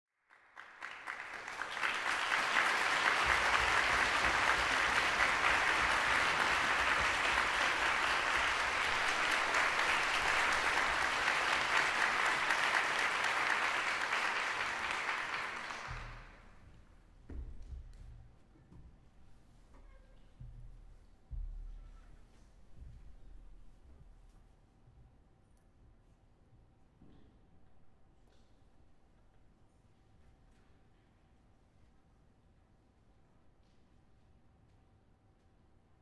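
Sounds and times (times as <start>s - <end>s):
audience applauding: 0.3s - 16.6s.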